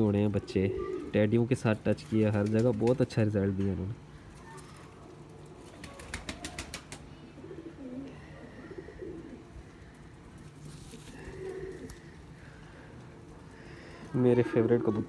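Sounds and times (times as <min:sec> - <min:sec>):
pigeons cooing: 0:00.4 - 0:01.4, 0:05.6 - 0:15.0.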